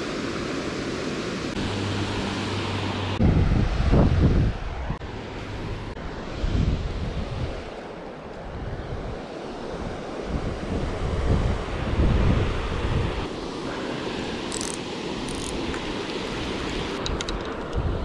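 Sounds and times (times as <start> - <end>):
wind buffeting microphone: 3.2 - 7.7, 8.4 - 13.3.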